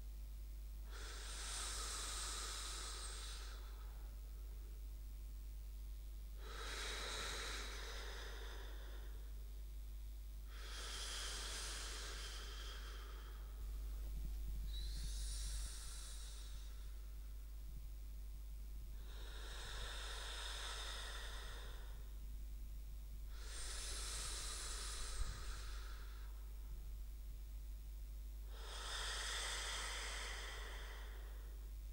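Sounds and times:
heavy sleep breathing: 0:00.9 - 0:04.2, 0:06.4 - 0:09.4, 0:10.4 - 0:17.4, 0:18.9 - 0:22.2, 0:23.3 - 0:26.5, 0:28.5 - 0:31.7.

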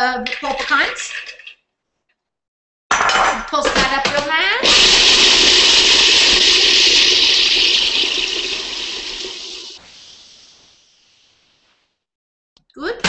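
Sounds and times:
food processor grinding nuts: 0:04.6 - 0:09.8.

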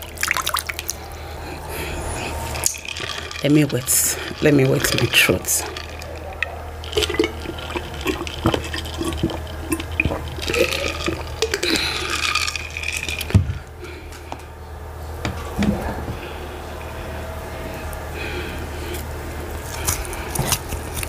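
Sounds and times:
drinking water gulps: 0:02.6 - 0:13.7.

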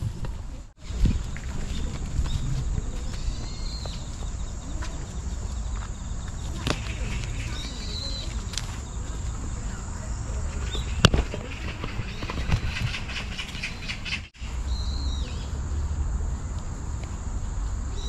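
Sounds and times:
wind rumble on microphone: 0:00.0 - 0:18.0
bird chirps: 0:00.8 - 0:15.6.

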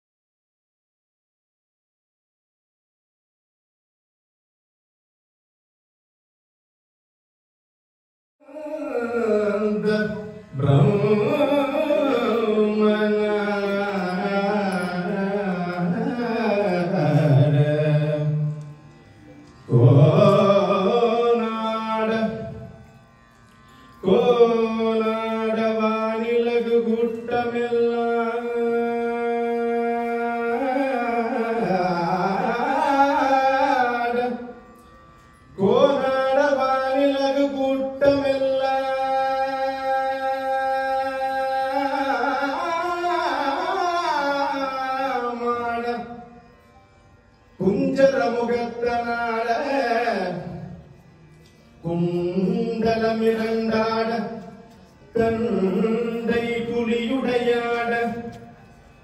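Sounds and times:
man singing: 0:08.4 - 0:18.7, 0:19.7 - 0:22.8, 0:24.0 - 0:34.7, 0:35.6 - 0:46.4, 0:47.6 - 0:50.9, 0:51.8 - 0:58.6.

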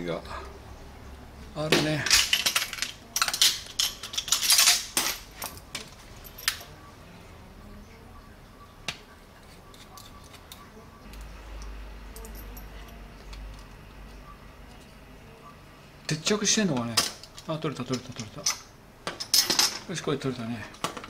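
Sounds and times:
metal screwdrivers clinking in case: 0:02.1 - 0:06.7.

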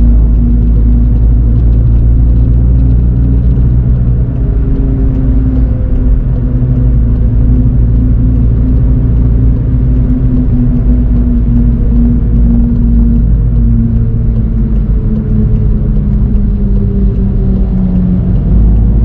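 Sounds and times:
car engine running steadily: 0:00.0 - 0:19.0
road and tyre rumble: 0:00.0 - 0:19.0.

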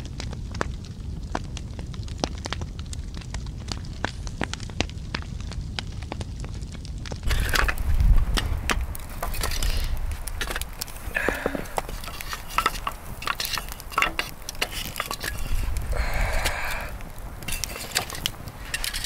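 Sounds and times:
wood fire crackling: 0:00.0 - 0:19.0
tongs clicking and knocking logs: 0:07.2 - 0:19.0
wood scraping on grate: 0:07.3 - 0:19.0.

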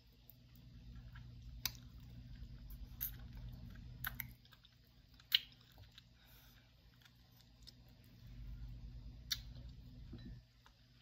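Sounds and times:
person chewing food: 0:00.0 - 0:11.0.

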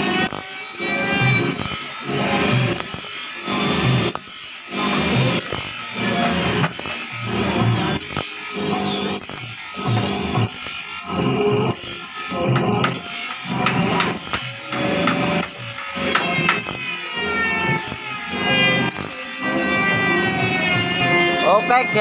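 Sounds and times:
electric motor humming: 0:00.0 - 0:22.0
grinding disc grinding saw teeth: 0:00.0 - 0:22.0.

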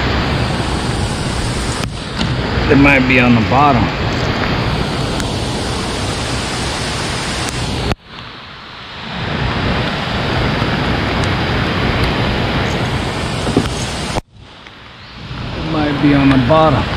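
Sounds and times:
running water: 0:00.0 - 0:14.3
rain: 0:00.0 - 0:16.9.

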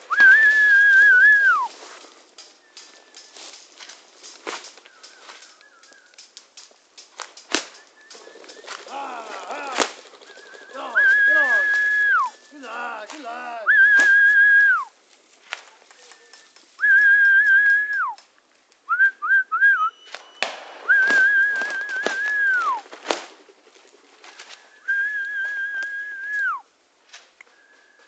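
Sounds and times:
high whistle blasts: 0:00.0 - 0:01.8, 0:10.4 - 0:12.6, 0:13.7 - 0:14.9, 0:16.1 - 0:18.2, 0:18.9 - 0:22.8
brush and twigs crackling: 0:00.0 - 0:18.9, 0:20.1 - 0:28.0
short whistle pips: 0:00.1 - 0:01.8, 0:07.5 - 0:09.0, 0:10.2 - 0:12.6, 0:13.7 - 0:14.9, 0:16.0 - 0:18.2, 0:18.9 - 0:22.8, 0:24.6 - 0:26.7.

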